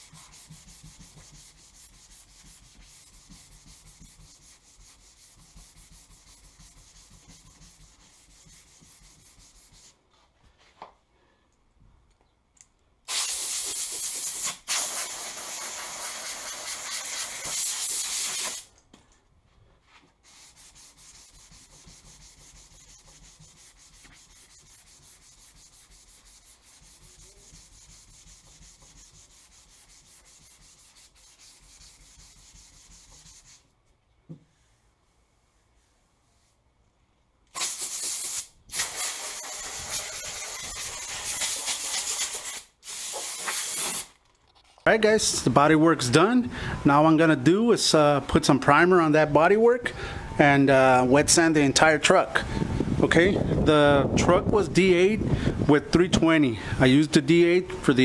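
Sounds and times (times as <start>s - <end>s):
sandpaper rasping: 0.0s - 10.0s, 20.2s - 33.7s, 37.6s - 44.1s
spray hiss: 13.1s - 18.7s, 37.5s - 44.1s.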